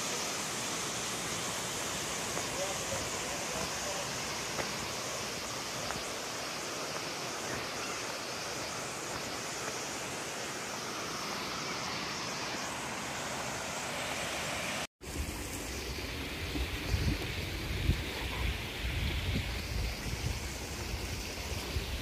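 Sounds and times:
stream rushing over stones: 0:00.0 - 0:22.0
wind buffeting microphone: 0:16.2 - 0:22.0.

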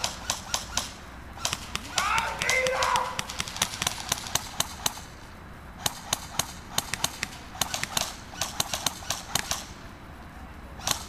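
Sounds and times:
airsoft guns firing: 0:00.0 - 0:05.2, 0:05.8 - 0:09.8, 0:10.8 - 0:11.0.

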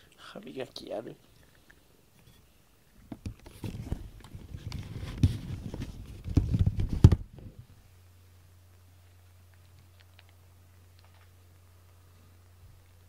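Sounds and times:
faint low hum: 0:00.0 - 0:13.0
cat fur rubbing microphone: 0:03.5 - 0:07.0.

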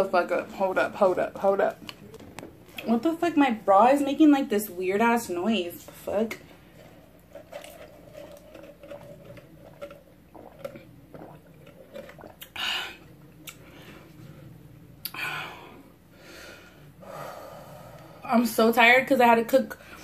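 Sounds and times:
person sipping through a straw: 0:06.7 - 0:13.7
mouth clicks and swallows: 0:09.7 - 0:12.6, 0:13.4 - 0:13.7.

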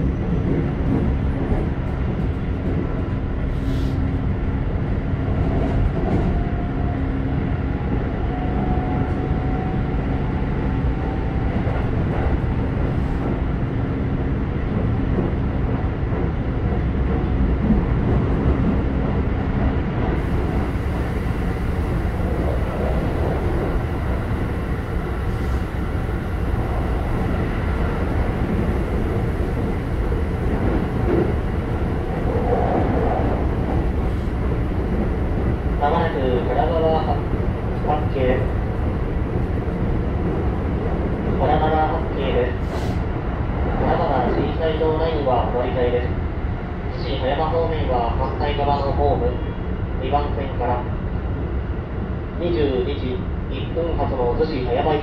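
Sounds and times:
train wheels rumbling: 0:00.0 - 0:45.4.

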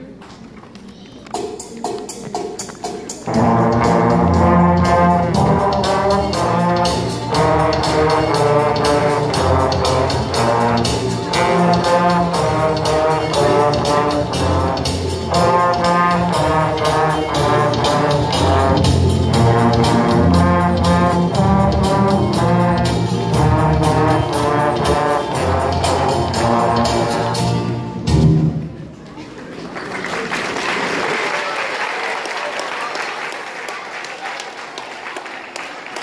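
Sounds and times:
trombone ensemble playing chords: 0:03.0 - 0:28.9.

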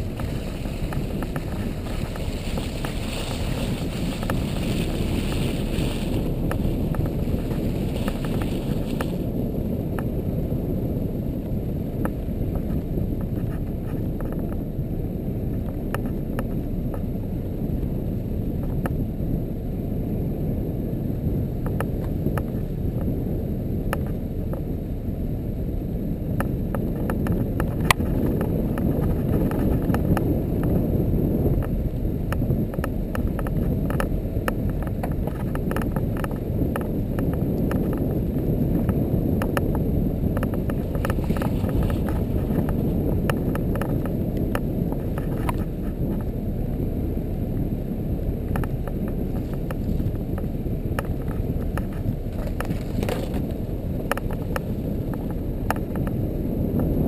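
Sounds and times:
atv engine rumble: 0:00.0 - 0:57.0
small clicks and rattles: 0:48.5 - 0:56.2.

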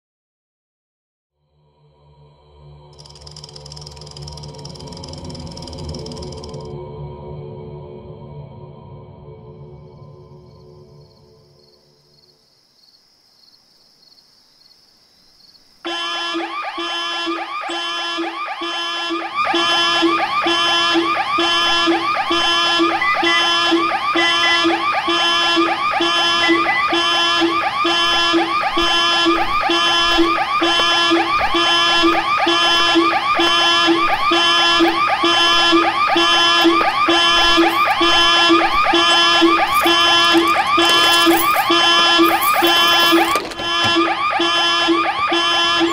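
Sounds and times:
pulsing electronic siren tone: 0:03.0 - 0:06.7, 0:15.9 - 0:45.9.

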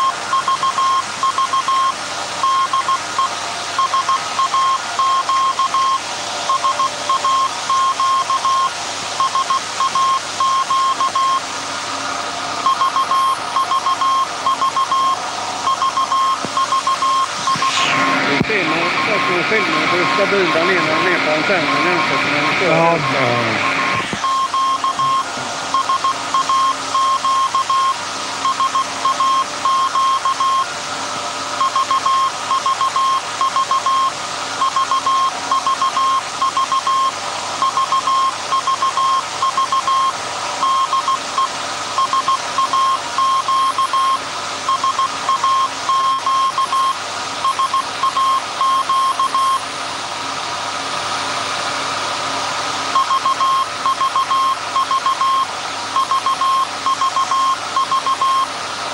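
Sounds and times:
morse code tone: 0:00.0 - 0:11.4, 0:12.6 - 0:30.7, 0:31.6 - 0:49.6, 0:53.0 - 0:58.5
radio static: 0:16.4 - 0:25.6.

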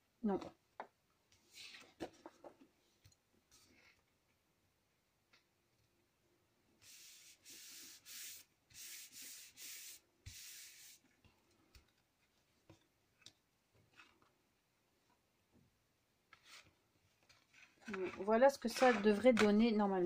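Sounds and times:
hand rubbing paper: 0:06.8 - 0:11.0.

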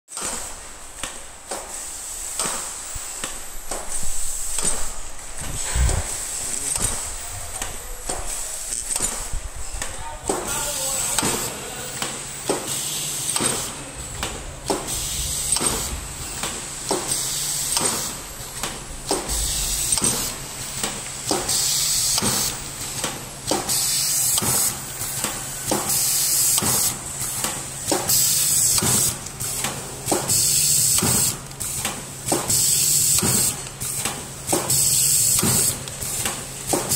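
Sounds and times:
air hissing: 0:01.5 - 0:27.3
machine hum: 0:03.0 - 0:23.5
packing machine jaws clacking: 0:06.6 - 0:36.9.

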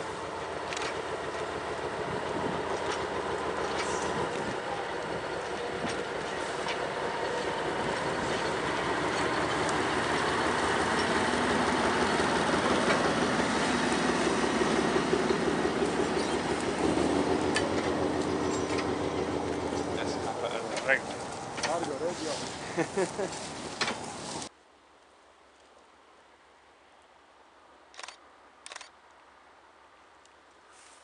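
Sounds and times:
diesel locomotive engine drone: 0:00.0 - 0:24.5
wheels rumbling on track: 0:00.0 - 0:24.5
sharp clicks: 0:27.9 - 0:28.9.

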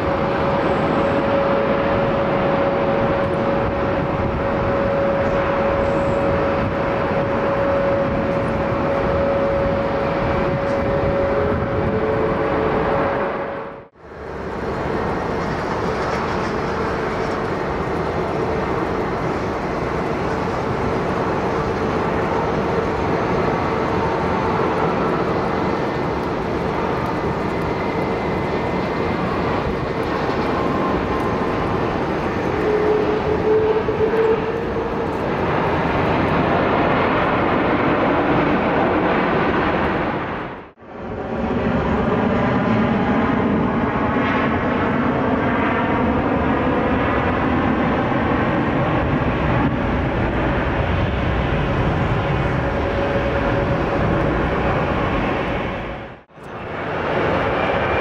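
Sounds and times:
jet engine rush: 0:00.0 - 0:58.0.

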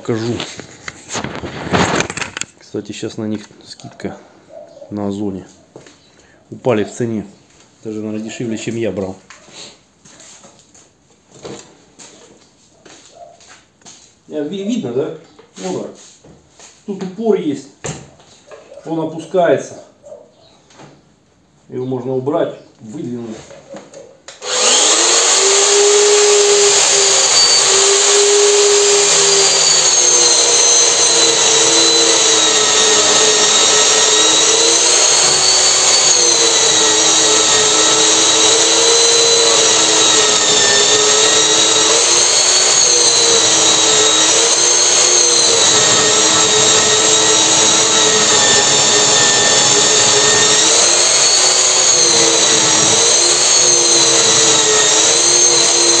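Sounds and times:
band saw cutting steel: 0:24.4 - 0:56.0.

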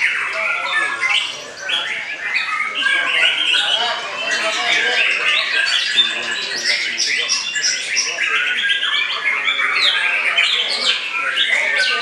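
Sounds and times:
other songbirds: 0:00.0 - 0:12.0.

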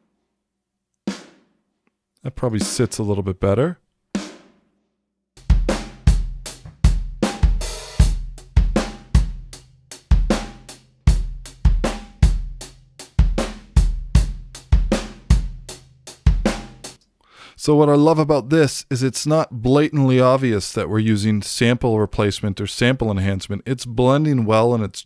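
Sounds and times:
drum kit beat: 0:01.1 - 0:01.6, 0:02.5 - 0:03.1, 0:04.2 - 0:04.6, 0:05.4 - 0:17.0.

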